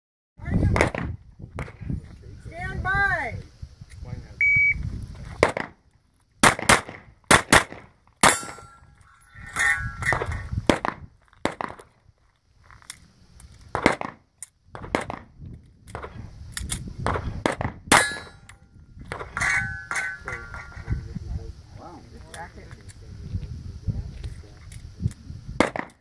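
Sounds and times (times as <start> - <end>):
pistol shots: 5.4 - 5.8, 6.4 - 8.8, 10.0 - 11.8, 13.7 - 14.2, 14.8 - 15.3, 17.0 - 18.5, 25.6 - 26.0
steel target clanging: 8.2 - 10.5, 17.9 - 21.0.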